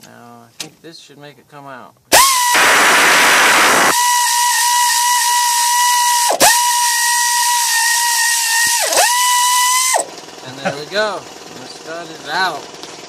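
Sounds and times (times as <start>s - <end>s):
air hissing: 2.1s - 10.1s
air ratchet whine: 2.1s - 10.4s.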